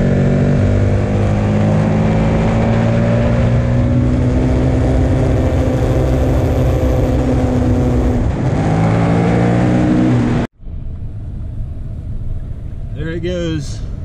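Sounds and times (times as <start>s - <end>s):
motorcycle engine revving high: 0.0s - 10.5s
road noise: 0.0s - 14.0s.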